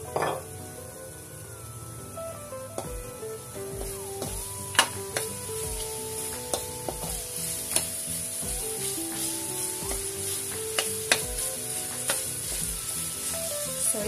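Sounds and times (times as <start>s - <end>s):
meat sizzling in oil: 0.0s - 14.0s
spatula clicking against pan: 10.6s - 12.4s.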